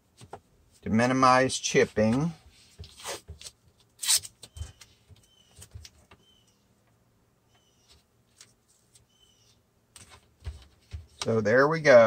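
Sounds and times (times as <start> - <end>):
tape clicking and rustling: 2.1 - 6.2, 9.9 - 11.4.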